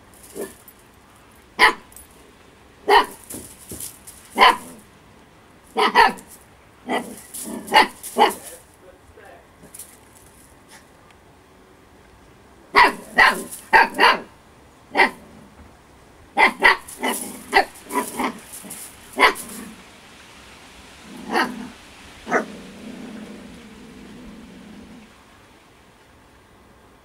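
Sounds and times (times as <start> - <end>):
puppy barking: 1.6 - 1.9, 2.9 - 3.5, 4.3 - 4.8, 5.7 - 8.6, 12.7 - 15.2, 16.4 - 19.7, 21.2 - 22.5.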